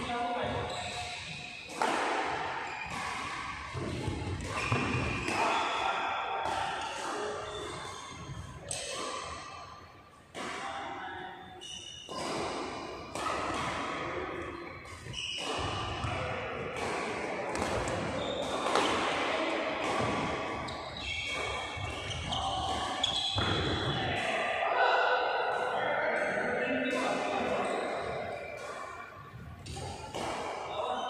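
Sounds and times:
rackets striking shuttlecock: 0.8 - 5.8, 6.4 - 9.4, 11.8 - 24.3, 25.5 - 30.7
shoes squeaking on court: 3.8 - 5.3, 6.8 - 8.5, 14.4 - 16.2, 17.7 - 18.8, 20.6 - 24.0, 27.4 - 31.0.

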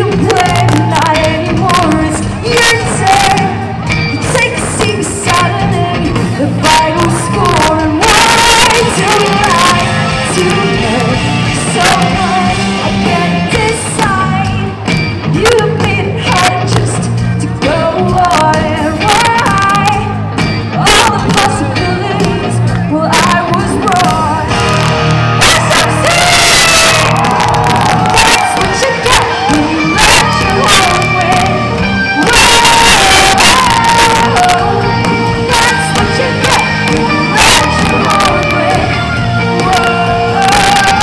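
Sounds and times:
woman singing: 0.0 - 24.6, 25.4 - 41.0
pop-rock band playing: 0.0 - 41.0.

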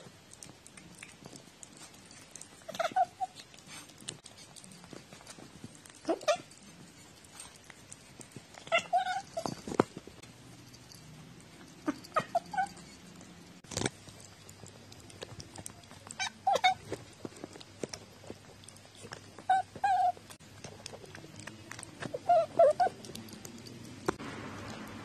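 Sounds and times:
cat licking and chewing: 0.0 - 25.0
cat mewing: 8.7 - 9.4, 16.1 - 16.9.

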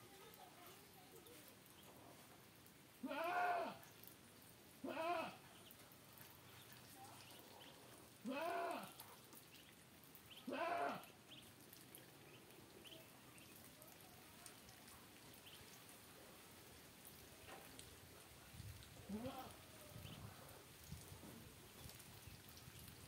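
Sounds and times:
farm animal bleating: 3.0 - 3.8, 4.8 - 5.5, 8.2 - 9.0, 10.4 - 11.2, 19.0 - 19.6
ducklings peeping: 5.5 - 8.0, 8.9 - 13.8, 15.3 - 15.9, 19.9 - 21.0.

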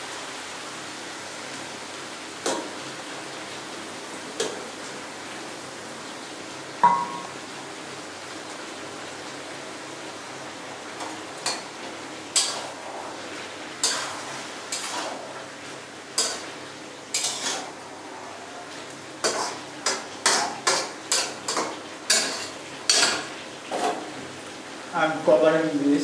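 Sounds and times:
metal spatula scraping wok: 12.3 - 13.0, 13.8 - 15.4, 16.2 - 17.8, 19.2 - 24.0.

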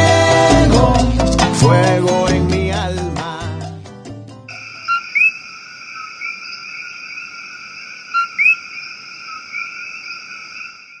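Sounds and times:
frog chorus: 4.5 - 11.0
two-note frog calls: 4.5 - 11.0.

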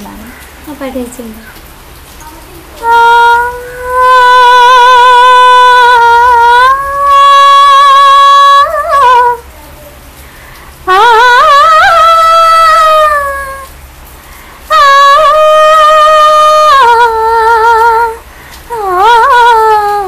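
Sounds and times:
woman singing unaccompanied: 2.8 - 9.5, 10.8 - 13.8, 14.7 - 20.0.

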